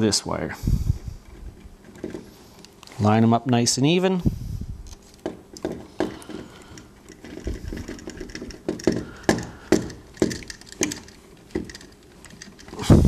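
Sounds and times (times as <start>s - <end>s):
wire nut clicking and crackling: 4.8s - 13.0s.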